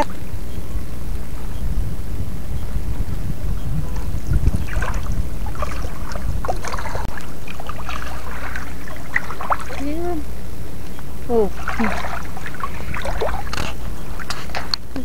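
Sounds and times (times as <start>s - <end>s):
low microphone rumble: 0.0s - 15.0s
seawater splashing and sloshing: 3.8s - 10.4s, 11.2s - 14.8s.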